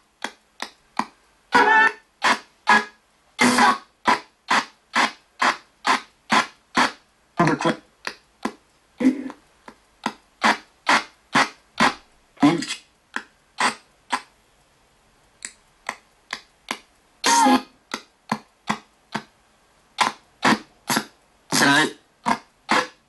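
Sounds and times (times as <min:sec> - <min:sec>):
radio scanning fragments and static: 0:01.5 - 0:07.9, 0:20.0 - 0:22.0.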